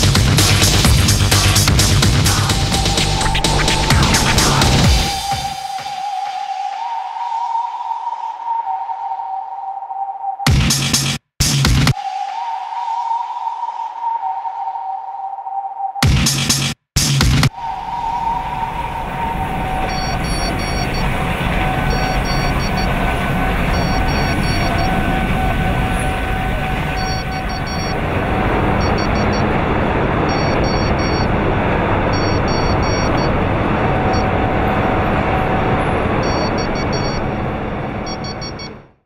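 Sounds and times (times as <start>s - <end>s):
industrial roar: 0.0s - 8.5s, 17.5s - 38.9s
droning hum: 17.5s - 38.6s.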